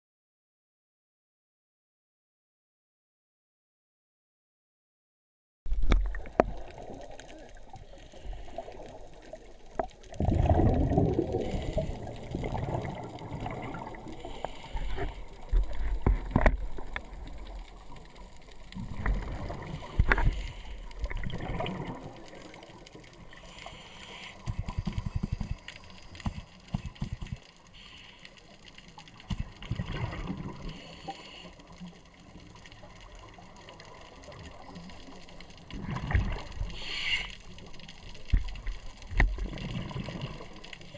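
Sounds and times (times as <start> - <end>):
regulator exhaust bubbles gurgling: 10.1 - 14.1.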